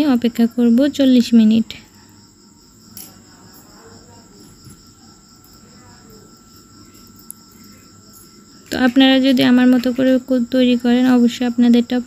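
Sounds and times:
insect trill: 0:00.0 - 0:12.0.

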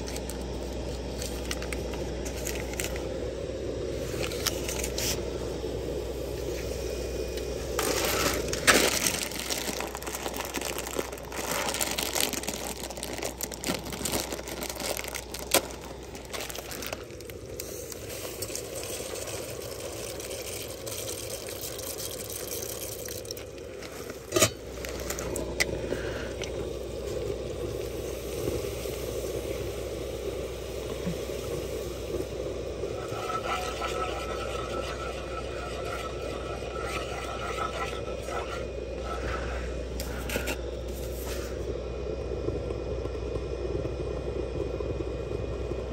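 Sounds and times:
stove burner noise: 0:00.0 - 0:41.8
plastic bag crinkling: 0:07.8 - 0:19.6
spatula scraping skillet: 0:32.9 - 0:41.5.

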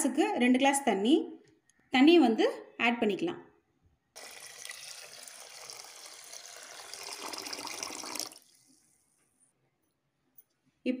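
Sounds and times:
water pouring into a pot: 0:04.2 - 0:08.8.

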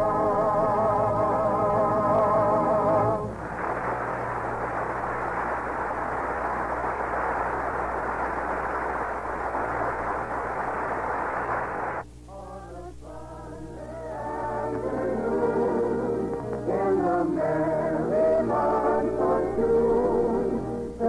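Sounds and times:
quiet music: 0:00.0 - 0:03.4, 0:12.2 - 0:21.0
steady rushing noise: 0:03.3 - 0:12.0.

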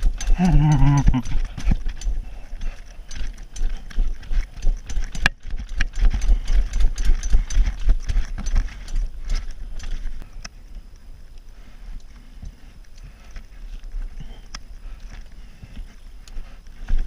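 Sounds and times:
bike tyres clattering on planks: 0:00.0 - 0:10.2
bike rattling: 0:00.0 - 0:17.0.

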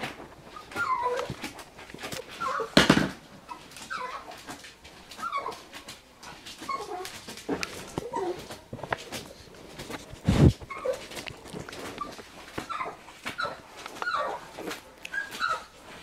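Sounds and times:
puppy whimpering: 0:00.5 - 0:02.8, 0:03.5 - 0:05.8, 0:06.5 - 0:08.6, 0:10.3 - 0:16.0.

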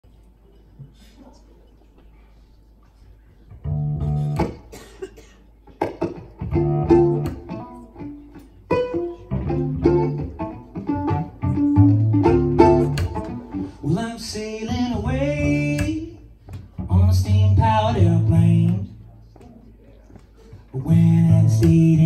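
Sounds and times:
plucked strings: 0:03.5 - 0:04.7, 0:05.7 - 0:18.9
cello bass line: 0:03.6 - 0:04.4, 0:06.4 - 0:07.6, 0:09.2 - 0:14.0, 0:16.8 - 0:19.0, 0:20.8 - 0:22.0.

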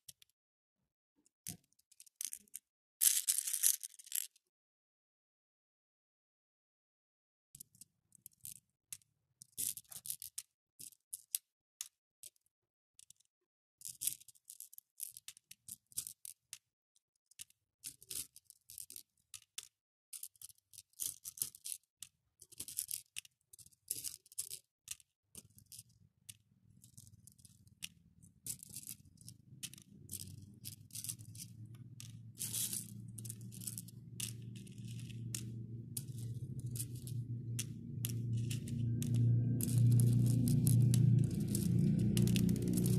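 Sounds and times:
beads rattling in plastic tub: 0:02.0 - 0:04.4, 0:09.6 - 0:10.4, 0:20.2 - 0:21.8, 0:22.5 - 0:26.0, 0:26.8 - 0:42.9.

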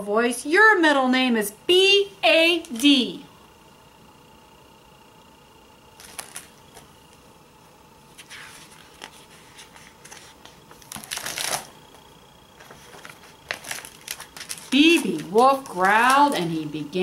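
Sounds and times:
book pages turning: 0:06.0 - 0:06.9, 0:08.1 - 0:16.4.

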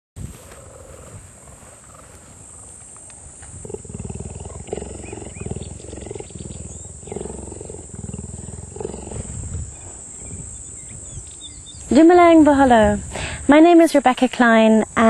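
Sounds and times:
cheetah purring: 0:03.5 - 0:12.4.

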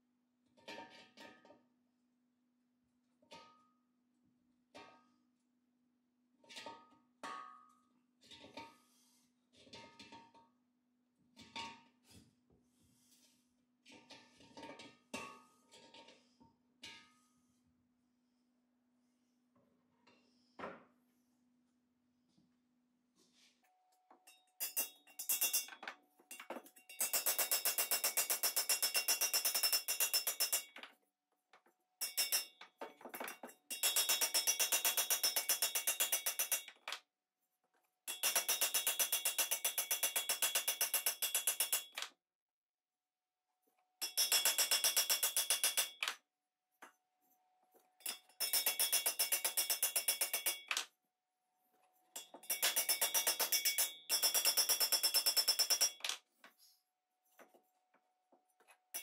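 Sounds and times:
hammer tapping thin metal: 0:24.3 - 0:30.9, 0:32.0 - 0:36.9, 0:38.1 - 0:42.0, 0:44.0 - 0:46.2, 0:48.0 - 0:50.9, 0:52.2 - 0:56.2.

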